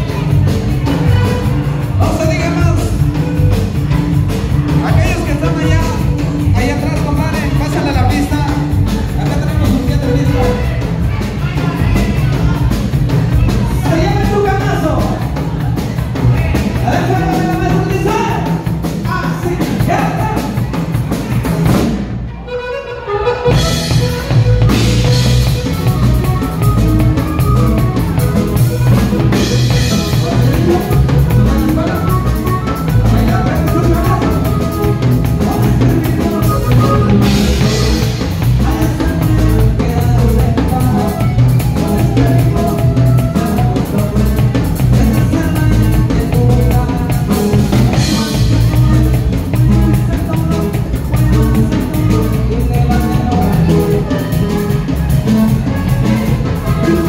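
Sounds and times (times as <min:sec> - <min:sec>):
accordion: 0:00.0 - 0:57.0
band playing: 0:00.0 - 0:57.0
drum kit: 0:00.0 - 0:57.0
person singing: 0:23.3 - 0:57.0.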